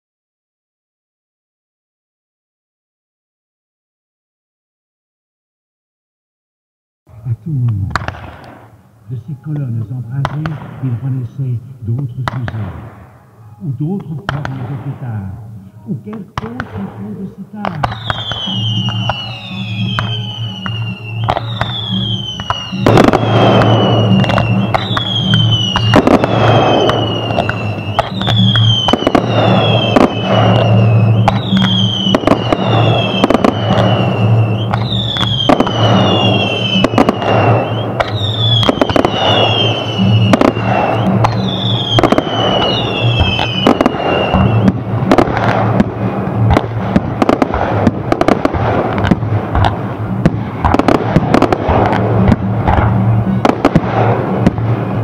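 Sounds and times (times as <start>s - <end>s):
fireworks bangs and crackling: 7.4s - 55.0s
low steady drone: 8.7s - 17.8s, 18.5s - 38.5s, 39.1s - 55.0s
falling firework whistle: 17.8s - 49.1s, 50.1s - 55.0s.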